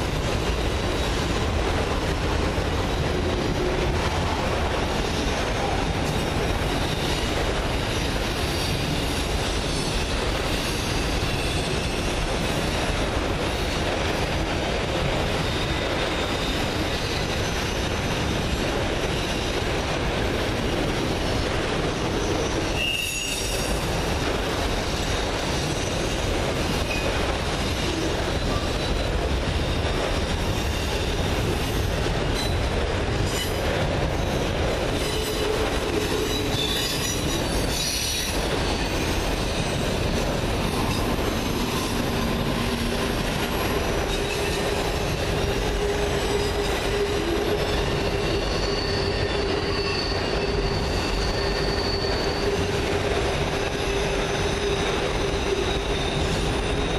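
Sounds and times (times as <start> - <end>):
freight train rolling rumble: 0.0 - 56.9
wheels clattering on rails: 0.0 - 56.9
high wheel squeals: 22.1 - 23.9, 34.9 - 56.9.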